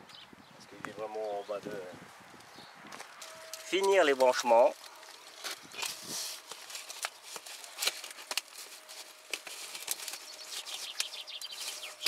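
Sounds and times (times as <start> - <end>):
plastic pipe clicking and scraping: 3.0 - 12.0.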